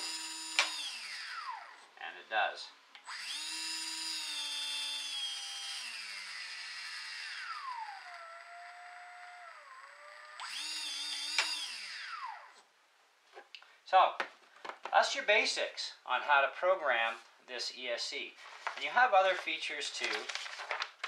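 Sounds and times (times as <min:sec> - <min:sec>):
electric boat motor whining: 0:00.0 - 0:01.8, 0:03.1 - 0:12.6.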